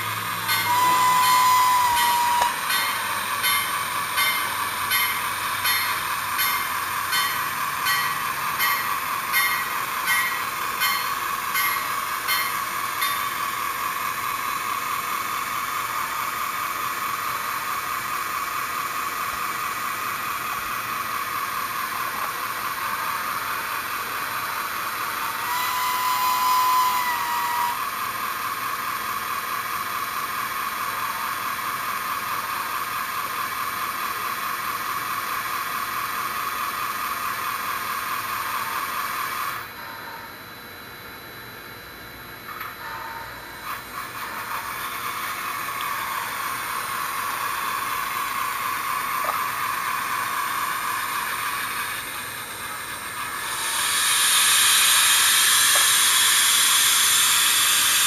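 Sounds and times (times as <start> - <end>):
train whistle blast: 0.0 - 14.8, 25.0 - 28.2, 53.3 - 58.0
model train steam chuffing: 0.0 - 40.5, 42.4 - 58.0.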